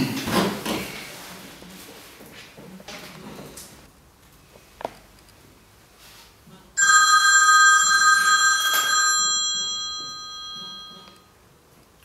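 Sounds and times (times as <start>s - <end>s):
bell ringing: 6.8s - 11.3s.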